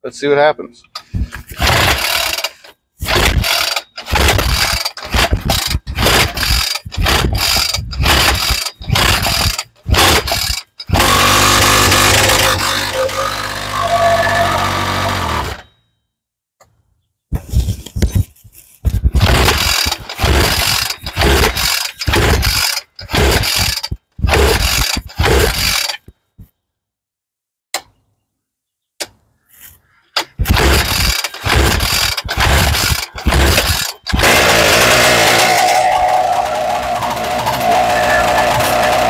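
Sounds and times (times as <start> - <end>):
two-stroke engine sputtering: 1.6 - 15.7, 19.1 - 26.1, 30.4 - 39.0.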